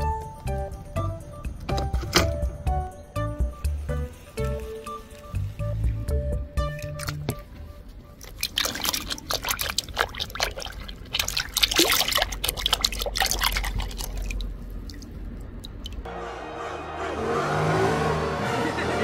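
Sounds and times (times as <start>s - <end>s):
water splashing and dripping: 5.7s - 7.5s, 8.2s - 16.1s.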